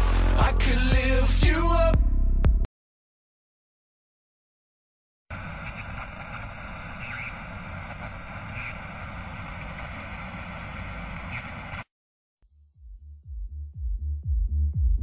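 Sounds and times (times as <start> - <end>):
farm machinery drone: 5.3 - 11.8.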